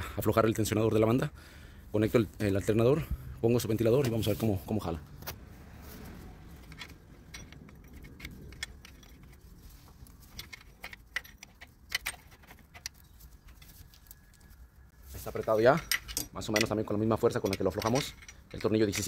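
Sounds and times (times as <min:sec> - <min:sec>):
metal wrench clicking on bolt: 0:06.6 - 0:09.4, 0:10.3 - 0:13.0, 0:15.8 - 0:19.0.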